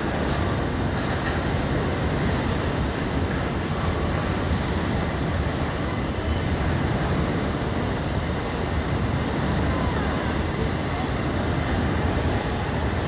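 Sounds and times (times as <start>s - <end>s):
freight train passing: 0.0s - 13.0s.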